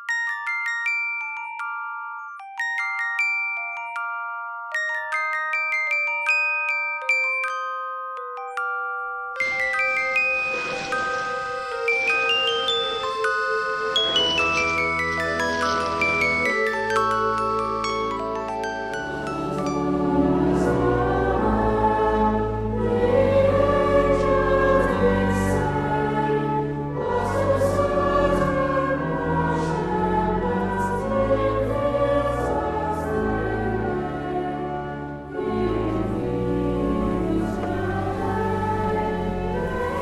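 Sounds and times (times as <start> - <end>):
choir singing held notes: 9.4 - 40.0.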